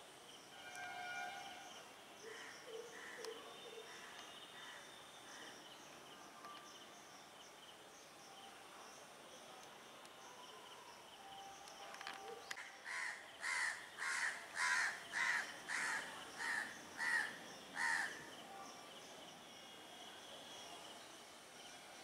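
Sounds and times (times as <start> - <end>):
faint insect drone: 0.0 - 22.0.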